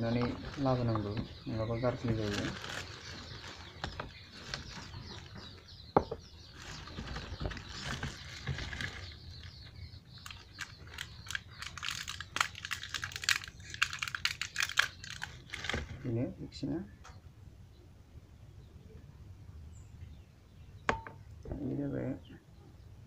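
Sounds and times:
plastic bag crinkling: 0.0s - 1.2s, 1.9s - 5.3s, 6.6s - 9.3s, 10.2s - 16.0s.

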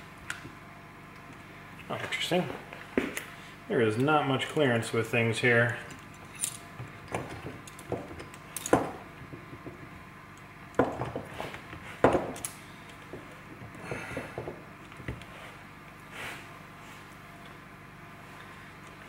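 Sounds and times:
clicks and knocks of small parts: 12.1s - 13.3s.

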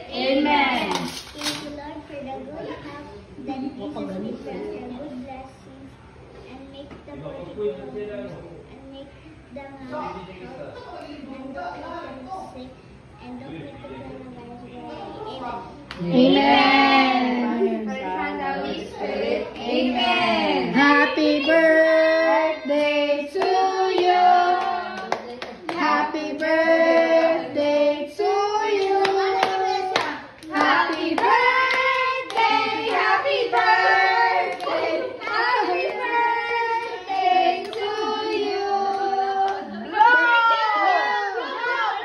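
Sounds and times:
hands clapping: 24.0s - 25.8s, 28.8s - 33.7s
children singing: 25.8s - 39.8s.

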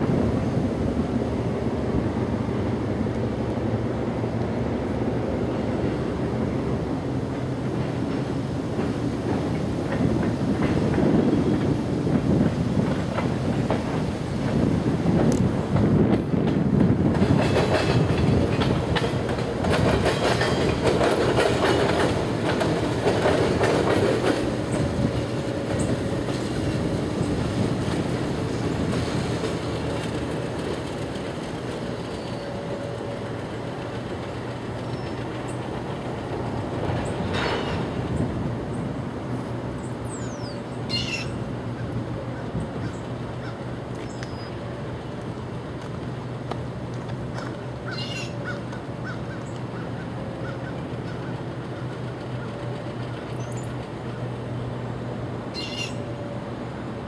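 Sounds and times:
wheels clattering over rail joints: 7.2s - 38.9s, 45.0s - 54.8s
wheel squeal: 55.6s - 56.0s.

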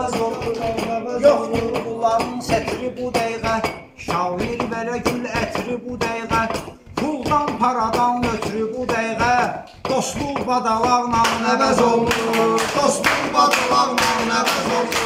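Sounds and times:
folk backing music with percussion: 0.0s - 15.0s.

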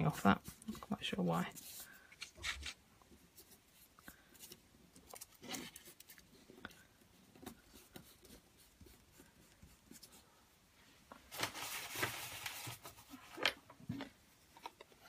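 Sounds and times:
tissue paper rustling: 11.2s - 13.3s.

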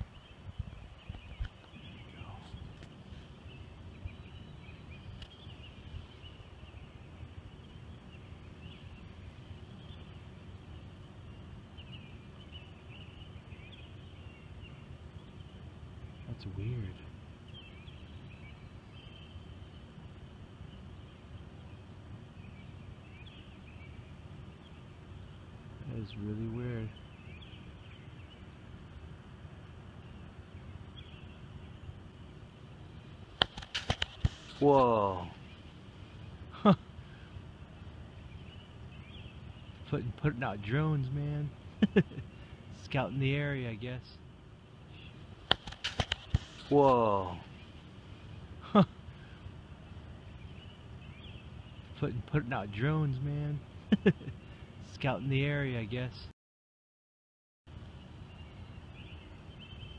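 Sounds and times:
wind rumble on microphone: 0.0s - 7.3s
distant birds chirping: 0.0s - 56.3s, 57.7s - 59.9s.

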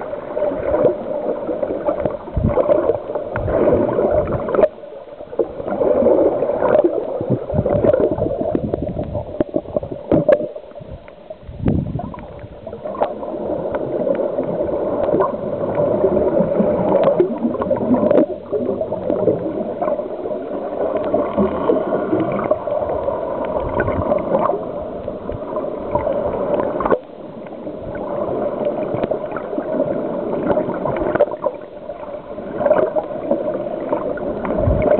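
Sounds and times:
underwater bubbling and gurgling: 0.0s - 34.9s
underwater clicks: 1.8s - 4.8s, 6.6s - 14.3s, 14.9s - 16.0s, 16.6s - 19.2s, 20.9s - 29.6s, 30.4s - 31.6s.

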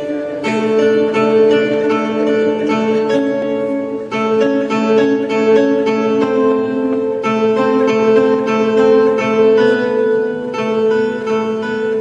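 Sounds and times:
plucked string instrument: 0.0s - 12.0s
steady held tones: 0.0s - 12.0s.

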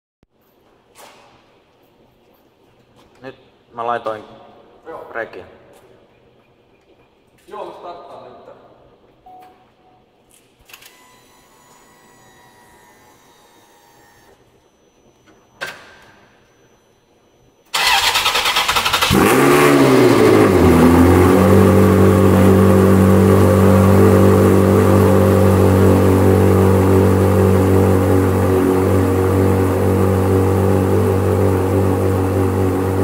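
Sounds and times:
car engine starting and idling: 17.7s - 33.0s.

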